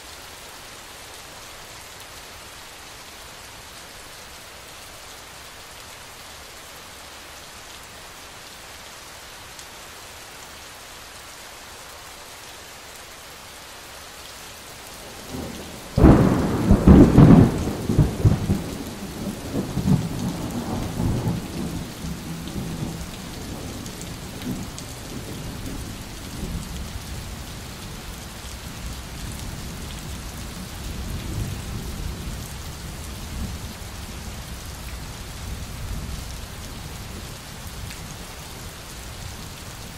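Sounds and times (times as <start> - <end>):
steady rain falling: 0.0 - 39.9.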